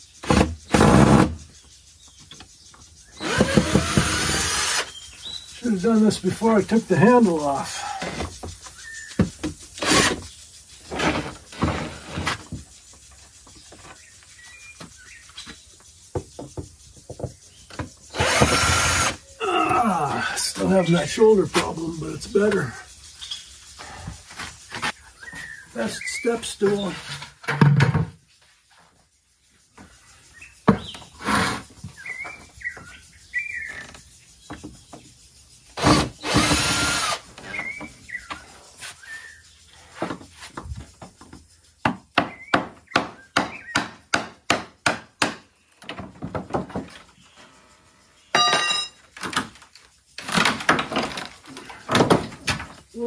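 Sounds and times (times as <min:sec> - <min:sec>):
power drill running: 0:03.2 - 0:04.9, 0:18.2 - 0:19.2, 0:35.8 - 0:37.2.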